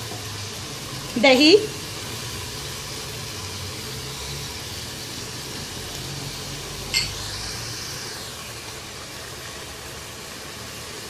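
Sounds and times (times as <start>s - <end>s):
food sizzling in a pot: 0.0s - 11.0s
sharp clink against pot: 7.0s - 7.2s.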